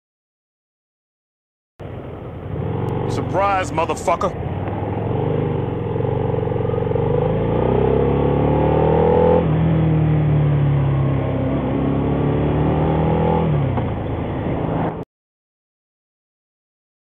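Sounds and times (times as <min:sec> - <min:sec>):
motorcycle engine accelerating: 0:01.8 - 0:15.0.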